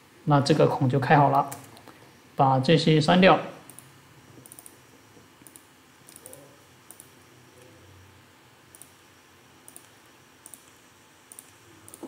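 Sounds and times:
faint computer mouse clicking: 0:03.7 - 0:04.8, 0:05.4 - 0:07.1, 0:08.7 - 0:09.0, 0:09.6 - 0:12.0.

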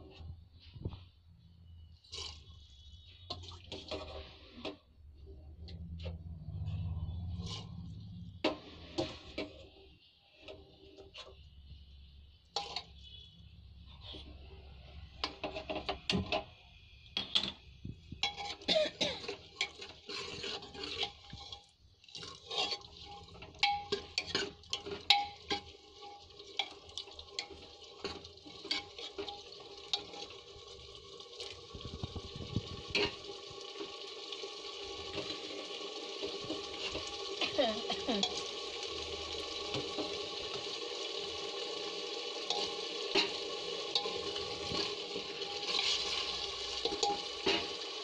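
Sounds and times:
food sizzling and bubbling: 0:00.0 - 0:48.0
metal ladle scraping a pot: 0:02.0 - 0:04.9, 0:06.0 - 0:11.6, 0:12.5 - 0:16.5, 0:17.3 - 0:30.5, 0:32.0 - 0:33.3, 0:36.2 - 0:38.4, 0:42.4 - 0:48.0.

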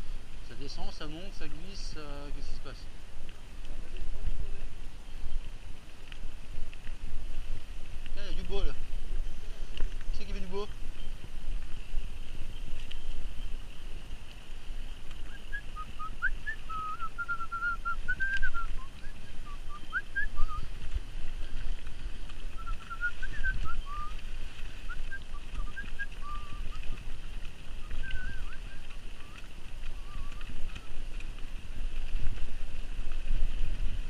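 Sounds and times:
bike tyres rumbling on dirt: 0:00.0 - 0:34.0.

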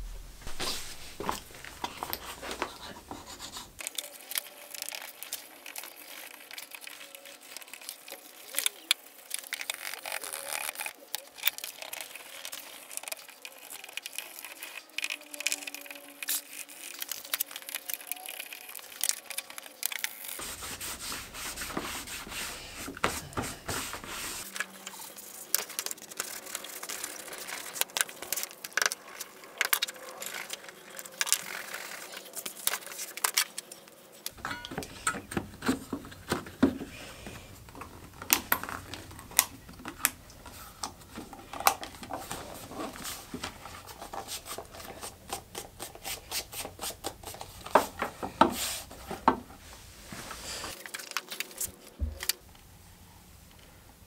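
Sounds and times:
tools rubbing on leather: 0:20.4 - 0:24.5.

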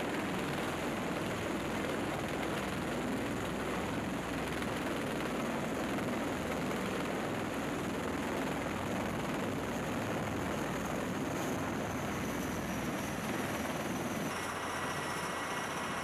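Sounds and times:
aircraft rotor and engine noise: 0:00.0 - 0:16.0.

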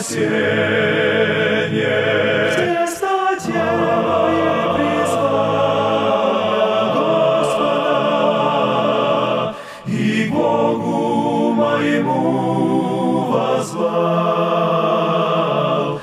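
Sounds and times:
choir-like vocal harmonies: 0:00.0 - 0:16.0.

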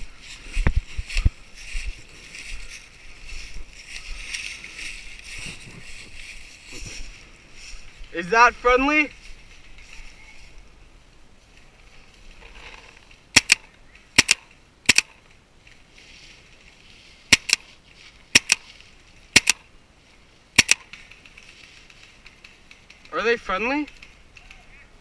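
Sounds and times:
paintball marker firing: 0:13.3 - 0:15.2, 0:17.3 - 0:17.6, 0:18.3 - 0:18.7, 0:19.4 - 0:19.6, 0:20.6 - 0:21.3.

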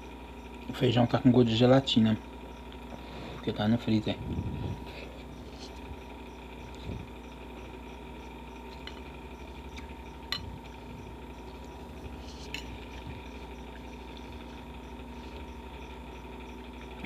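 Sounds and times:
electric fan hum: 0:00.0 - 0:17.0
fork clinking on ceramic bowl: 0:12.4 - 0:12.8.

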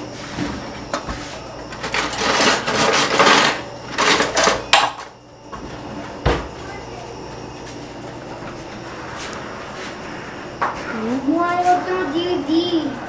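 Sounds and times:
metal cutlery clattering in drawer: 0:01.8 - 0:04.6.

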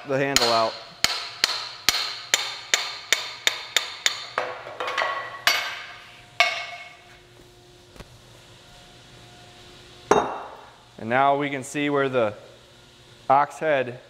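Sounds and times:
hammer tapping steel punch: 0:00.3 - 0:05.8.

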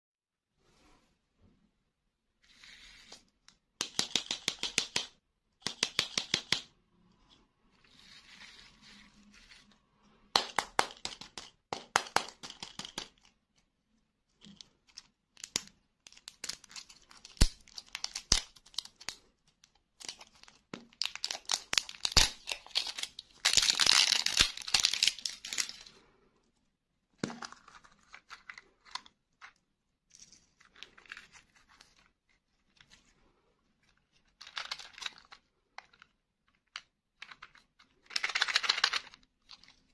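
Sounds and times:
plastic wrapper crinkling and tearing: 0:15.4 - 0:19.3, 0:20.0 - 0:25.9.

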